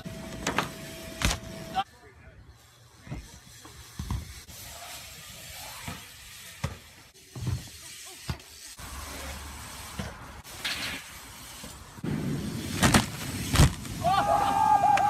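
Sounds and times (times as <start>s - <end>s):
bike tyres thumping on landings: 3.0s - 15.0s.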